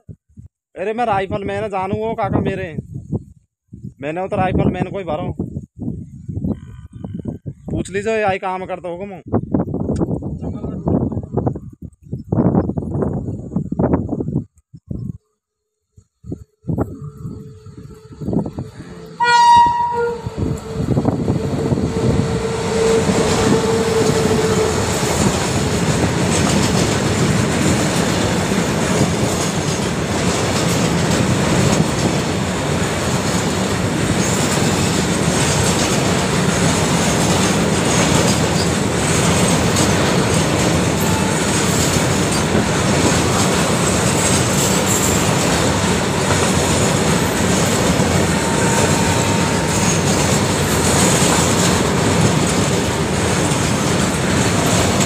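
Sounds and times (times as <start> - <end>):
train horn: 17.0 - 25.3, 41.0 - 41.9, 48.2 - 50.1
steel wheels clattering on rails: 21.5 - 55.0.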